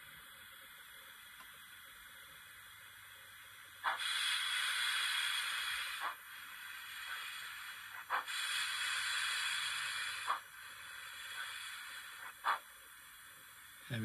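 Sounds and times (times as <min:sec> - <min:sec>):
steam hiss: 0:03.6 - 0:14.0.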